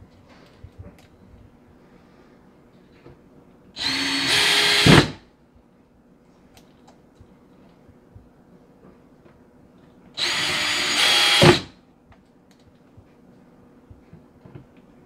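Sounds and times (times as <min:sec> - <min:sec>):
cordless drill driving a screw: 0:03.8 - 0:05.2, 0:10.2 - 0:11.7.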